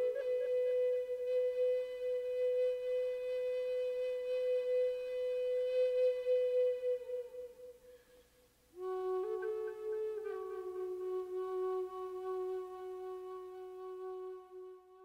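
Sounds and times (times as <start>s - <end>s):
flute playing long held note: 0.0s - 8.2s, 8.8s - 15.0s.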